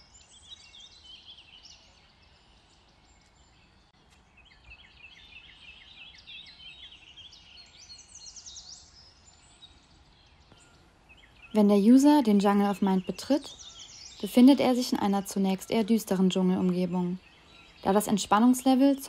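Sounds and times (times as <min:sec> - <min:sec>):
birds chirping: 0:00.0 - 0:19.0
low background noise: 0:00.0 - 0:19.0.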